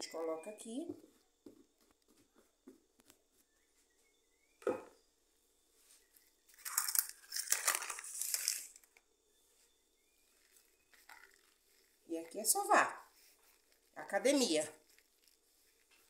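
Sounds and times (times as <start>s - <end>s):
knock: 4.6s - 4.9s
plastic tablecloth crinkling: 5.9s - 16.0s.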